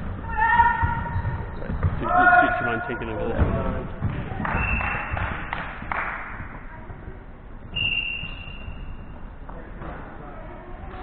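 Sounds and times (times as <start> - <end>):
ball and players thudding on floor: 0.6 - 2.3, 3.3 - 6.5.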